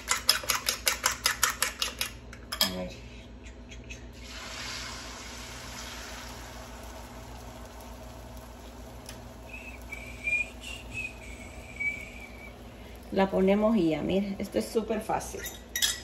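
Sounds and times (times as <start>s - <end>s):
eggs sizzling in frying pan: 0.0s - 2.2s, 4.2s - 16.0s
fork whisking eggs in bowl: 0.0s - 2.2s.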